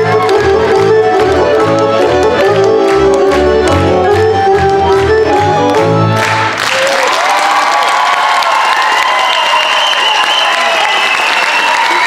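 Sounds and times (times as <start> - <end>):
lively folk dance music: 0.0 - 7.0.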